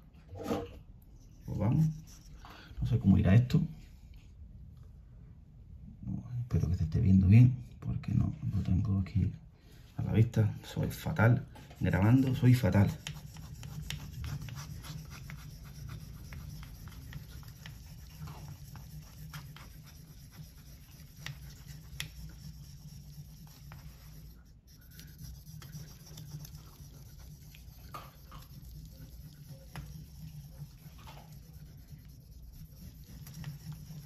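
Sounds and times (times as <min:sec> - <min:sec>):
knife scratching on whetstone: 0:11.9 - 0:34.0.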